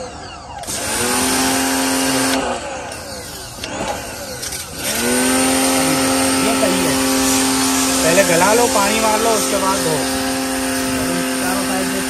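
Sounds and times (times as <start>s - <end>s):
pressure washer motor whining: 0.0s - 12.0s
water jet hissing: 3.1s - 12.0s.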